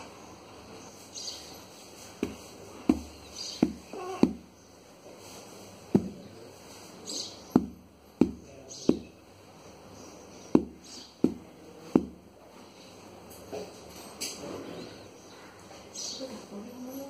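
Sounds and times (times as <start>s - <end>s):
baby feet thumping on blanket: 2.2s - 4.5s, 5.9s - 6.3s, 7.5s - 9.1s, 10.6s - 12.2s.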